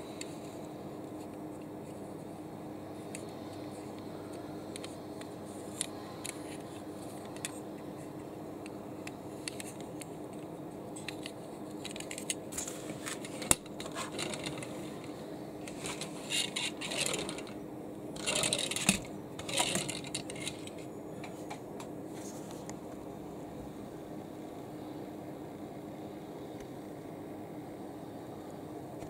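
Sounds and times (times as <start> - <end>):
toy car rattling and scraping: 11.0 - 15.1, 15.7 - 17.6, 18.2 - 20.8
toy car clicking on table: 18.2 - 20.7.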